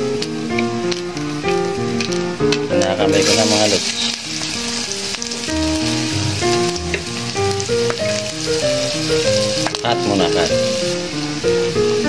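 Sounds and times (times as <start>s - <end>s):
garlic sizzling in hot oil: 0.0s - 12.0s
background music with bass: 5.5s - 9.6s.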